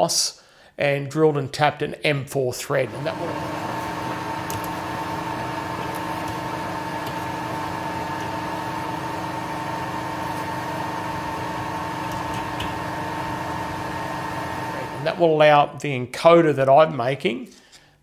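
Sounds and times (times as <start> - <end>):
machine hum with tones: 2.9 - 15.2.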